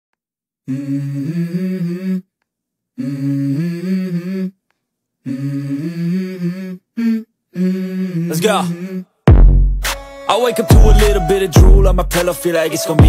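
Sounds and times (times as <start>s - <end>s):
person humming: 0.7s - 2.3s, 3.0s - 4.6s, 5.2s - 9.1s, 10.7s - 12.3s.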